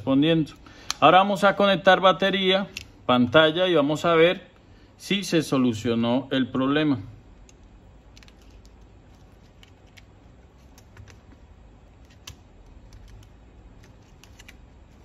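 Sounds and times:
light clicks of phone parts: 0:00.8 - 0:01.0, 0:02.7 - 0:03.0, 0:07.4 - 0:11.4.

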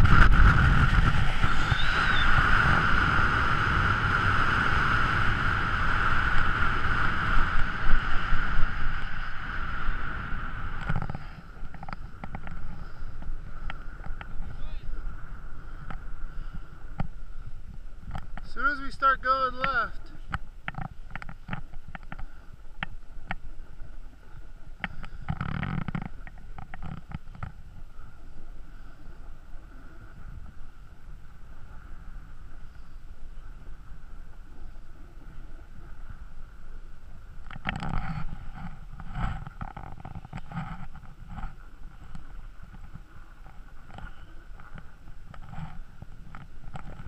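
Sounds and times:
skis scraping over packed snow: 0:00.0 - 0:15.7
wind on microphone: 0:00.0 - 0:18.7, 0:20.0 - 0:47.0.

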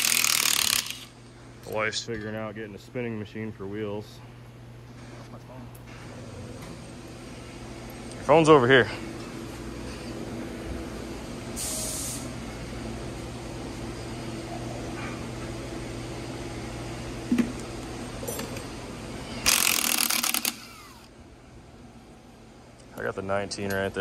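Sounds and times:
low machine hum: 0:00.0 - 0:24.0
compressed air hissing: 0:11.6 - 0:12.3.

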